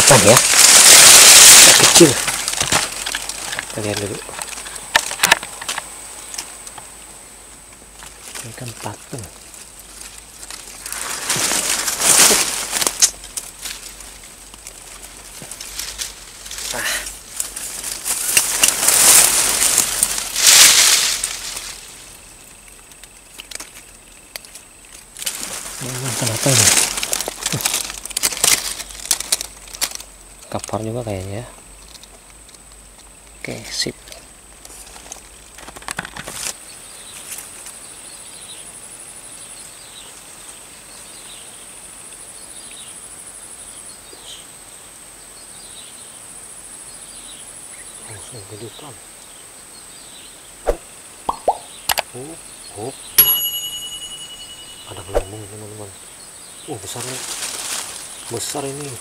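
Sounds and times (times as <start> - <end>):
high-pitched insect trill: 0.0 - 7.4, 8.0 - 35.6, 36.5 - 59.0
dry grass and leaves rustling: 0.0 - 44.1, 52.8 - 59.0
short falling chirps: 50.7 - 51.8, 53.2 - 55.6.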